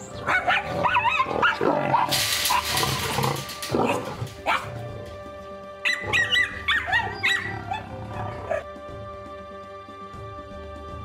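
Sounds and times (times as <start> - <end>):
background music: 0.0 - 11.0
dog barking and yipping: 0.2 - 4.8, 5.8 - 8.6.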